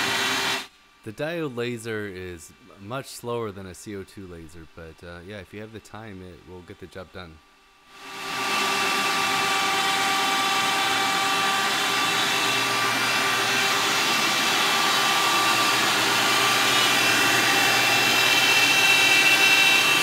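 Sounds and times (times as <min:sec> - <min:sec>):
router motor whine: 0:00.0 - 0:00.7, 0:07.9 - 0:20.0.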